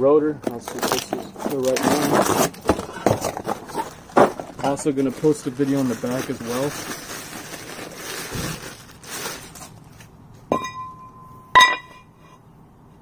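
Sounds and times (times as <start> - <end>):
plastic bag crinkling: 0.4 - 10.2
metal rotor struck and ringing: 10.5 - 12.2.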